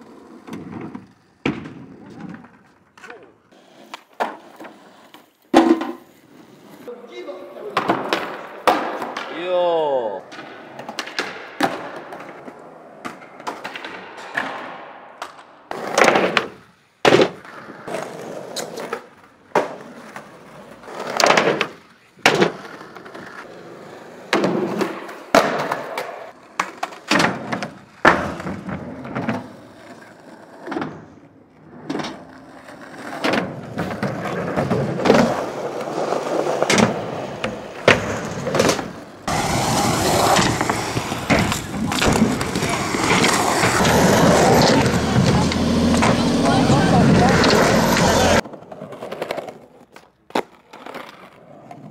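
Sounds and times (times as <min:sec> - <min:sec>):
skateboard clacks: 0:00.0 - 0:06.1, 0:07.5 - 0:09.4, 0:10.2 - 0:51.9
skateboard wheels rolling on concrete: 0:00.0 - 0:51.9.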